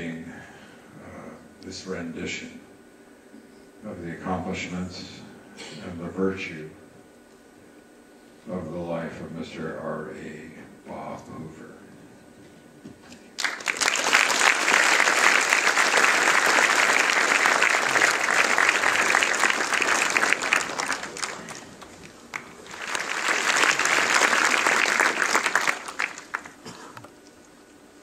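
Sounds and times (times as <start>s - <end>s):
large audience applauding: 13.4s - 27.0s.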